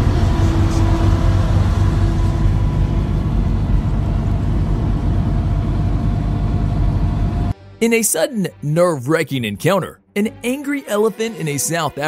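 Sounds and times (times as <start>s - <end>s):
boat engine running: 0.0s - 7.5s.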